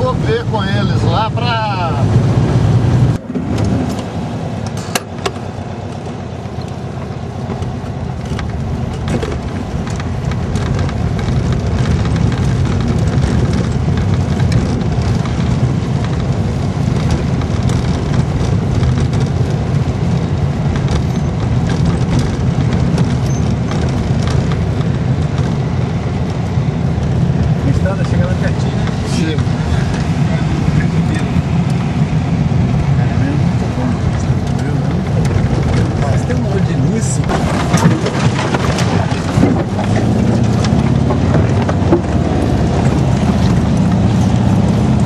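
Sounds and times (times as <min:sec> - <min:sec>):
car engine and tyres rumbling: 0:00.0 - 0:45.0
small knocks and rattles: 0:07.4 - 0:26.2, 0:34.2 - 0:44.6.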